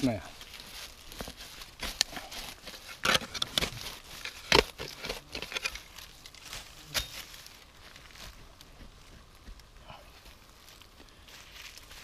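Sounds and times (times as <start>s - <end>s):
digging tool scraping soil: 1.2s - 7.5s.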